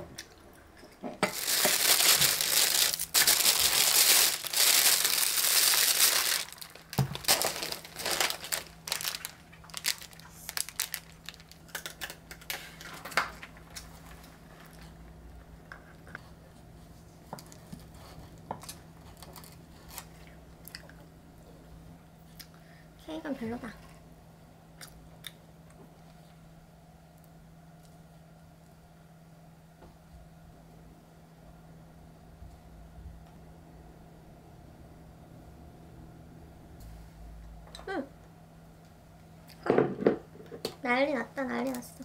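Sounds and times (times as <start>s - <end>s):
plastic bag rustling and crinkling: 1.2s - 14.9s.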